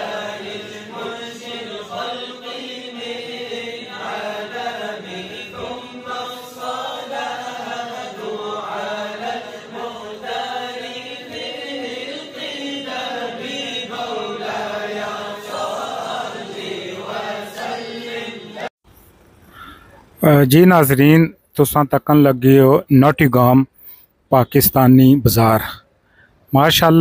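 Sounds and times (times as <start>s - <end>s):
devotional chanting voices: 0.0s - 18.7s.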